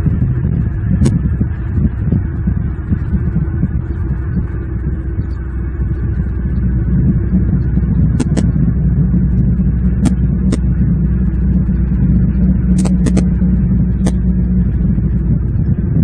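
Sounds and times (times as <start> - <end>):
low outdoor rumble: 0.0 - 16.0
sharp clicks: 8.2 - 8.5, 12.8 - 13.3.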